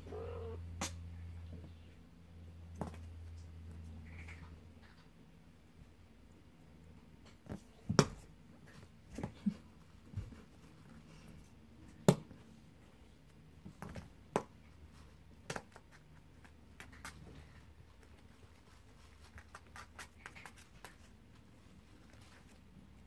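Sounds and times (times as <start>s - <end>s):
paws scratching on cardboard: 15.7s - 22.7s.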